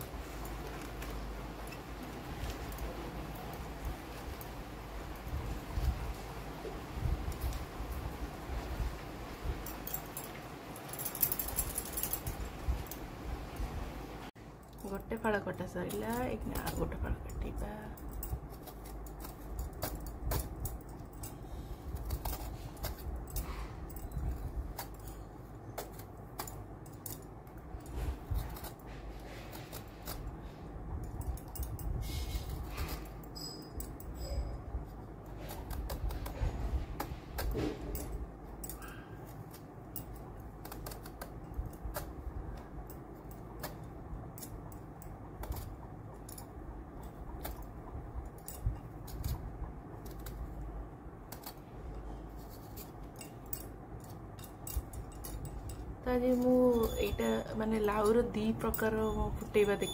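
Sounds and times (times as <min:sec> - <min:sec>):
peeler scraping vegetable skin: 0:35.3 - 0:37.9, 0:38.9 - 0:42.7, 0:48.9 - 0:53.2.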